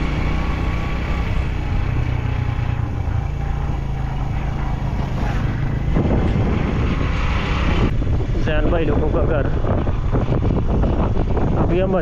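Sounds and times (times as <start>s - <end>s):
vehicle engine running: 0.0s - 11.6s.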